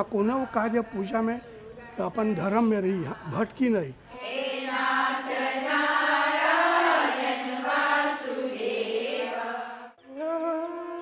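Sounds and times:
group of voices chanting: 4.2 - 10.0.

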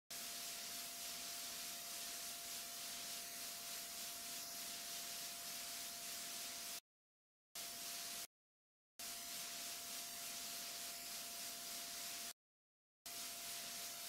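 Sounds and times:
thin continuous tone: 0.1 - 6.8.

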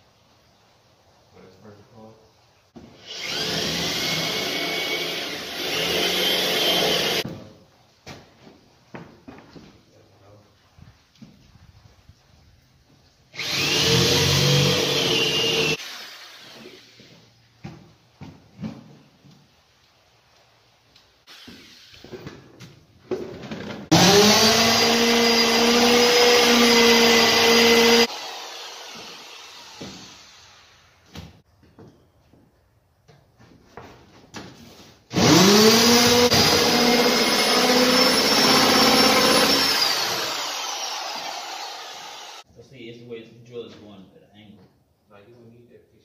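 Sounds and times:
electric drill running: 3.0 - 7.2, 13.4 - 17.0, 23.9 - 30.8, 35.1 - 42.4.

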